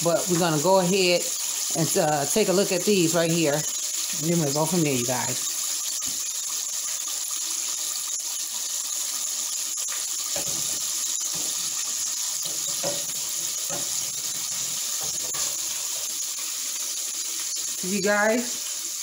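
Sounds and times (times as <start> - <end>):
fish deep-frying in oil: 0.0 - 19.0
skimmer knocking against pot: 12.4 - 14.0.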